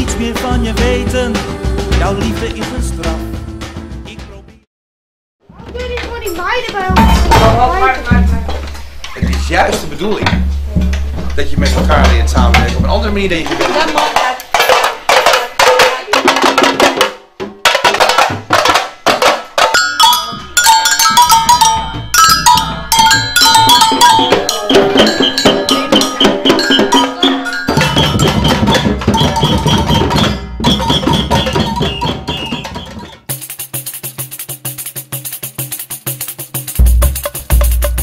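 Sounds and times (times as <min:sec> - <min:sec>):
samba drums: 0:00.0 - 0:04.7, 0:05.5 - 0:38.0
metal bells struck with sticks: 0:06.3 - 0:08.4, 0:09.2 - 0:13.1, 0:17.9 - 0:34.0.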